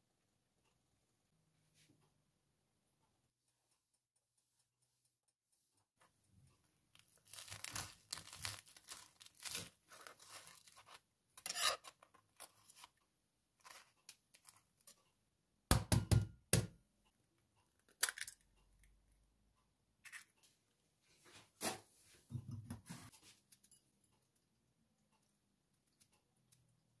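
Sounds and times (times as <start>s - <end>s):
knife crunching through toast: 7.1s - 12.0s.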